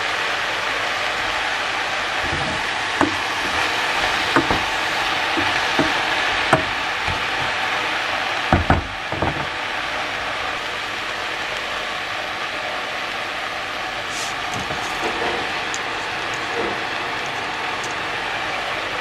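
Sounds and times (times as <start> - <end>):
steady cooking hiss: 0.0 - 19.0
utensils knocking: 2.2 - 7.7, 8.5 - 9.6.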